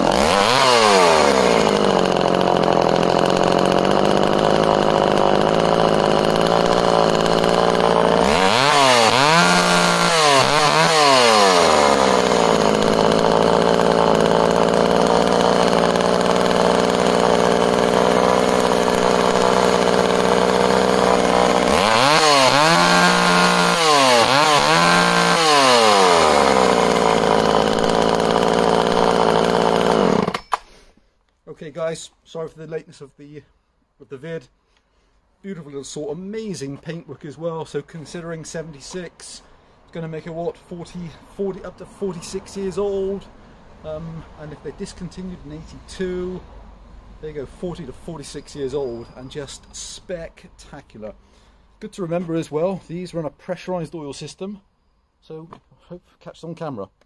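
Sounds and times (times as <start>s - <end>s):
chainsaw idling and revving: 0.0s - 30.6s, 37.7s - 46.4s, 47.3s - 50.1s.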